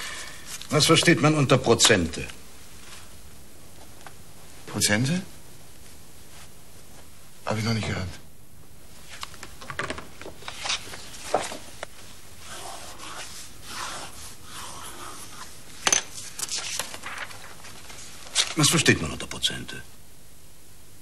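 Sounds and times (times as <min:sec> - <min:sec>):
pencil scratching on paper: 0:12.4 - 0:15.6.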